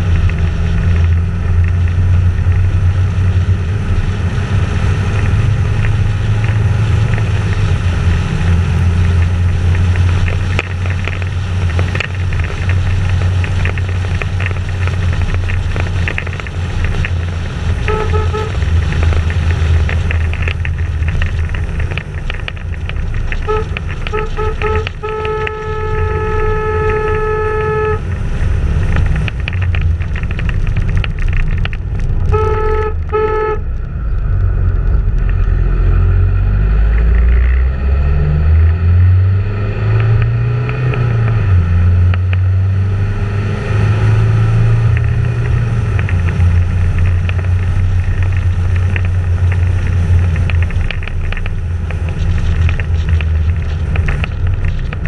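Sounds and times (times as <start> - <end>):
wind rumbling on microphone: 0.0 - 55.0
vehicle horn tooting: 17.8 - 18.8, 23.3 - 28.1, 32.3 - 33.6.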